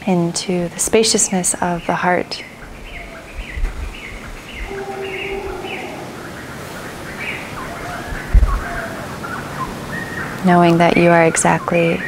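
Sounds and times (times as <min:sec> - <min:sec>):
birds chirping: 0:01.7 - 0:10.4.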